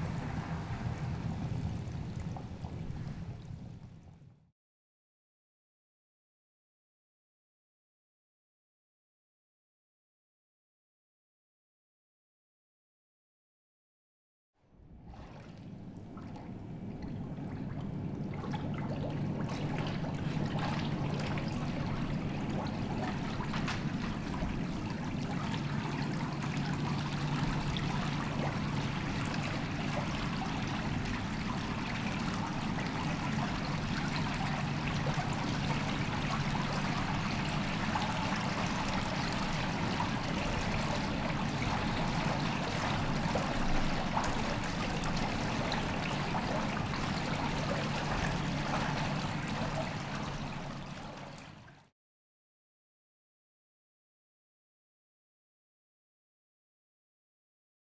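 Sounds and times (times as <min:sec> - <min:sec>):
water trickling: 0:00.0 - 0:04.2, 0:15.0 - 0:51.8.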